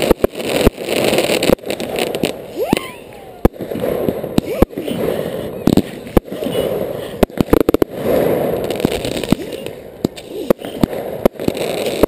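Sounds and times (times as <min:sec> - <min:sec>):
fireworks bangs and cracks: 0:00.0 - 0:12.0.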